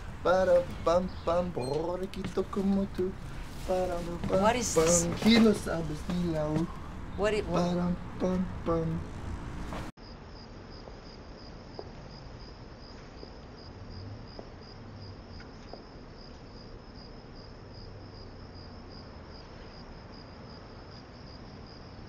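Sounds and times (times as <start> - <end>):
crickets chirring: 0.0 - 22.0
person speaking: 0.1 - 9.2.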